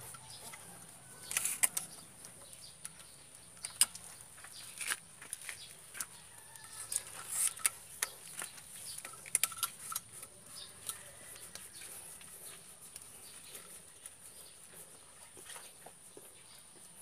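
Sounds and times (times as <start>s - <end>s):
sharp clicks of pipe joint: 0.0s - 12.3s.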